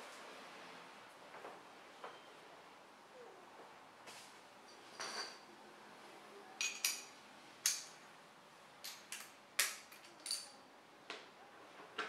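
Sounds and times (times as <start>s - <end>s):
metal tools clinking: 6.6s - 7.9s.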